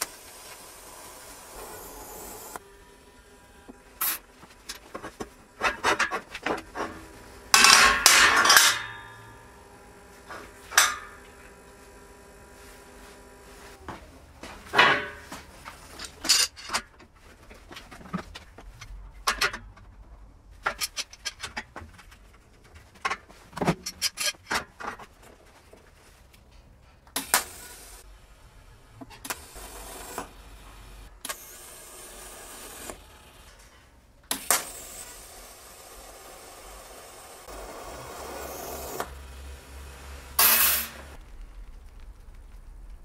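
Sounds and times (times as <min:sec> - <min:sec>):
metal parts and tools clinking: 0:07.6 - 0:09.4, 0:14.7 - 0:25.2
metal clang ringing: 0:07.6 - 0:09.5.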